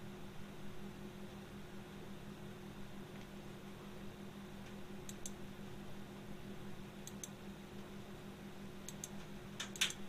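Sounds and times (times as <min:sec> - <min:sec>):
low steady hum: 0:00.0 - 0:10.0
computer mouse clicks: 0:05.0 - 0:05.4, 0:07.0 - 0:07.4, 0:08.8 - 0:10.0.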